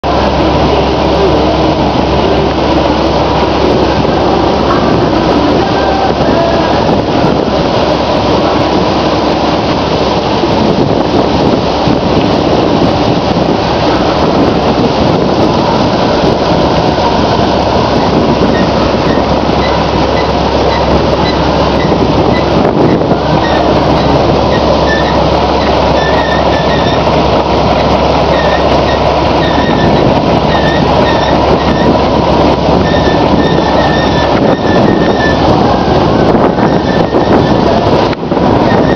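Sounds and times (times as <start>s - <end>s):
combine harvester running: 0.0s - 38.9s
high squeak: 18.0s - 27.0s, 27.8s - 32.0s, 32.8s - 37.8s.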